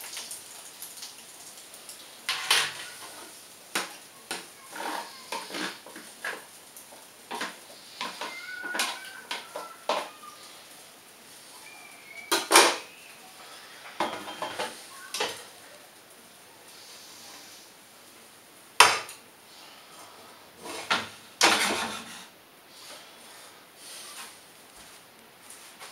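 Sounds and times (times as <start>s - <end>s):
dishes clattering: 2.3s - 3.1s, 7.3s - 10.1s, 12.3s - 12.9s, 14.0s - 15.4s, 20.7s - 22.3s
utensils and dishes clinking: 2.3s - 3.2s, 7.3s - 10.2s, 12.1s - 13.0s, 13.9s - 15.5s.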